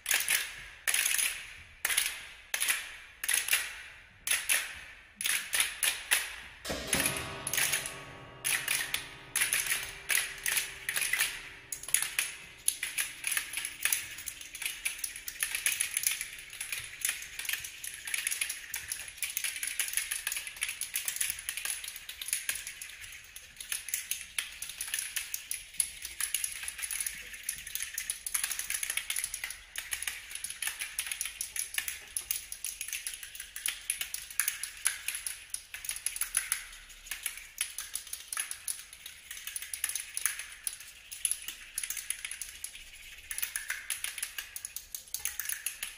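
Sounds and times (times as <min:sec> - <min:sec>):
chamber ensemble clicks and taps: 0:04.3 - 0:45.9
faint low held tones: 0:06.7 - 0:15.6.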